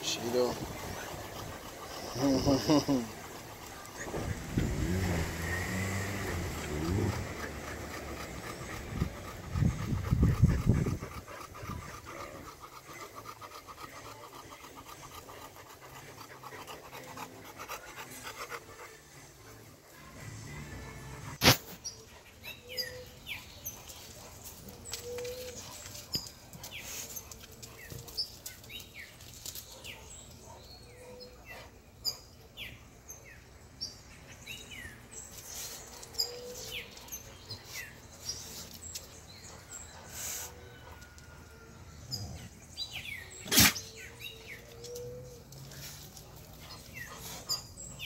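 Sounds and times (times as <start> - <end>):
small birds chirping: 21.7 - 41.1, 42.0 - 48.0.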